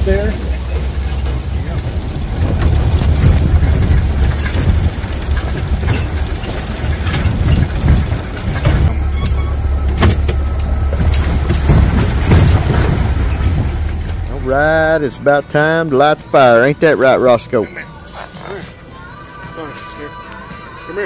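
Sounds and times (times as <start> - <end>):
knocks and rattles: 0.0 - 15.0
low engine rumble: 0.0 - 17.0.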